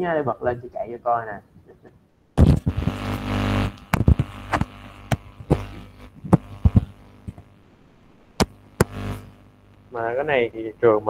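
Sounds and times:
low hum: 2.3s - 10.1s.

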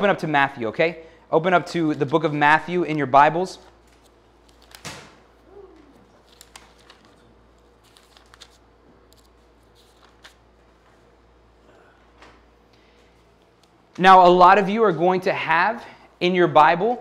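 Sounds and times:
room hum: 0.0s - 17.0s
book pages turning: 3.6s - 11.1s.

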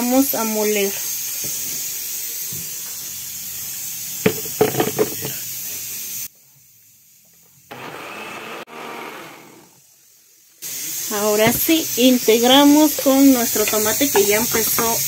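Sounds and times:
salsa frying in a pan: 0.0s - 7.7s, 9.6s - 15.0s
jar knocking on blender base: 4.3s - 5.2s
blender motor running: 7.7s - 9.8s.

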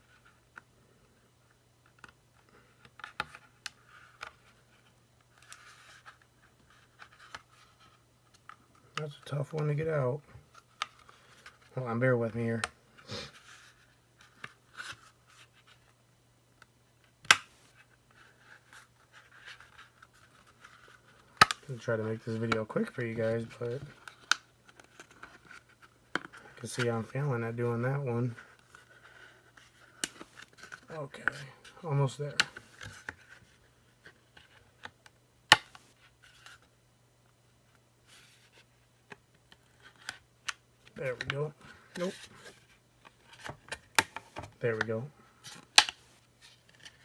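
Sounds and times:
plastic part snapping: 45.7s - 46.0s.

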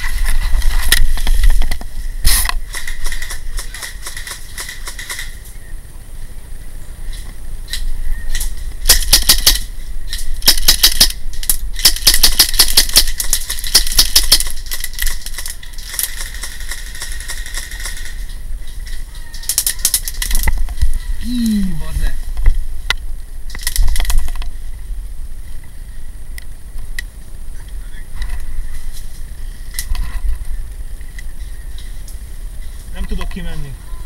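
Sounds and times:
airsoft guns firing bursts: 2.3s - 5.4s, 8.8s - 9.7s, 10.4s - 11.2s, 11.8s - 18.2s.

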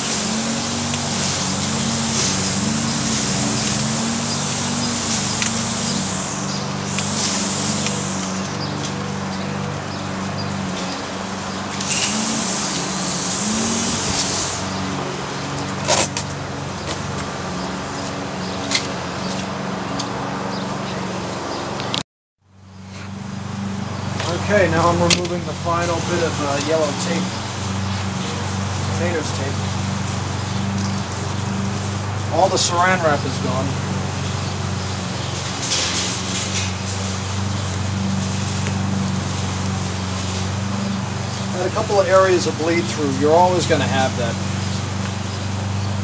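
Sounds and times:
tape crackling: 0.0s - 17.3s
steady low hum: 0.0s - 19.2s.

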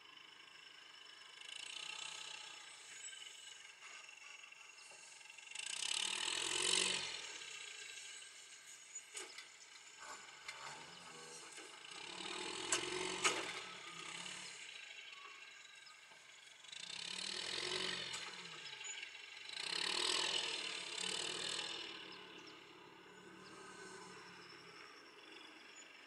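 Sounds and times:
hay squeeze mechanical rattle: 8.7s - 14.8s, 19.6s - 22.5s.

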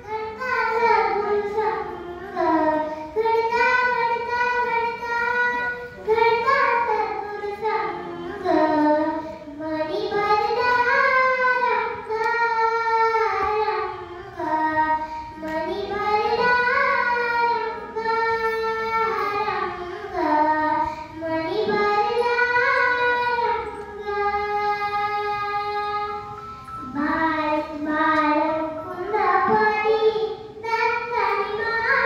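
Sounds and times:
girl singing devotional song: 0.0s - 32.0s.

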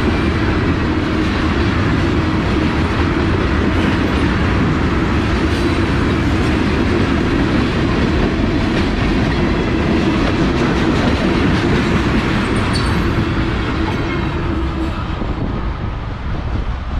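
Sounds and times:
train wheels rumbling on rails: 0.0s - 16.9s.

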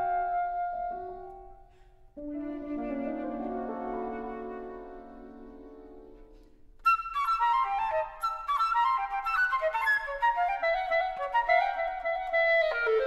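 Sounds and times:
flute and clarinet long notes: 0.0s - 1.6s, 2.2s - 13.0s
solo flute fast trills: 6.9s - 13.0s.

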